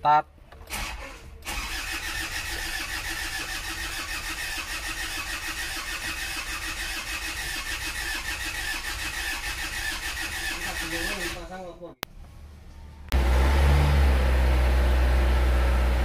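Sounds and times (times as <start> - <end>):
starter motor cranking engine: 0.7 - 11.5.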